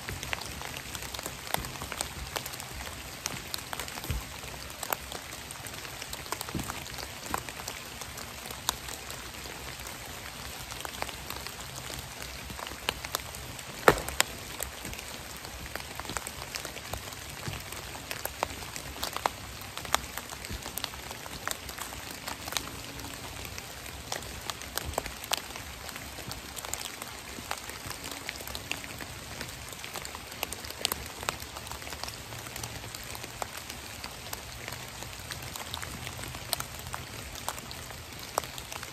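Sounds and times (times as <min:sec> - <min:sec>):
rain falling on dead leaves: 0:00.0 - 0:38.9
sharp raindrop hits: 0:11.0 - 0:19.0.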